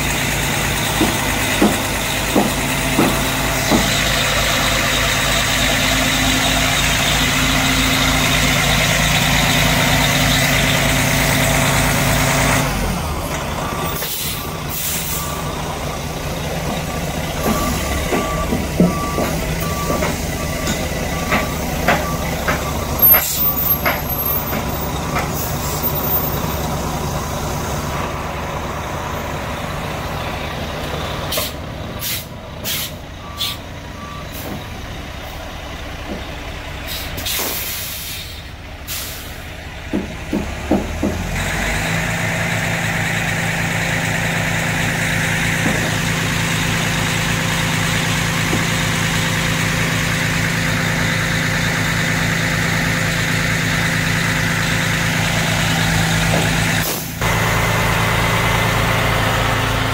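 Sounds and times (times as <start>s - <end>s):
truck diesel engine idling: 0.0s - 59.9s
sharp metal knocks and clanks: 0.7s - 4.3s.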